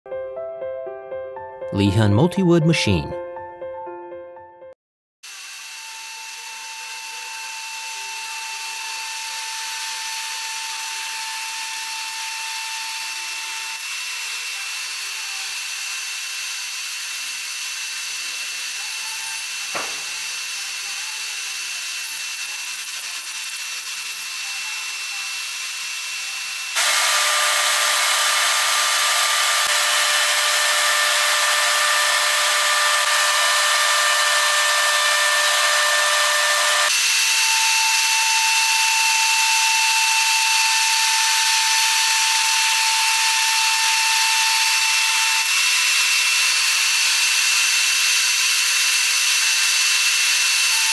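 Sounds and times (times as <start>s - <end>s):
router bit cutting wood: 5.2s - 50.9s
router spindle whining: 5.3s - 50.9s
single knock: 19.8s - 20.2s.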